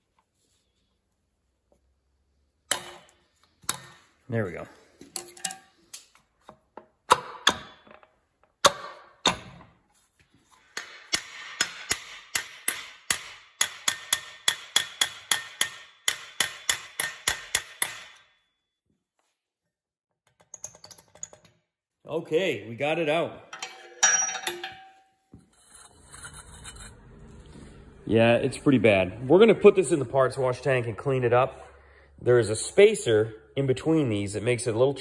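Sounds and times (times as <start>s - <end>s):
hammer striking metal punch: 10.8s - 18.3s.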